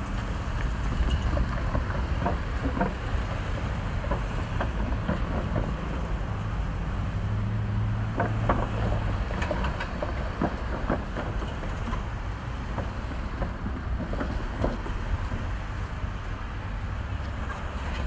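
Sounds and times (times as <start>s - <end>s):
freight train moving: 0.0s - 18.0s
vehicles crossing tracks: 0.0s - 18.0s
light clicks and knocks: 0.1s - 6.1s, 8.1s - 15.6s.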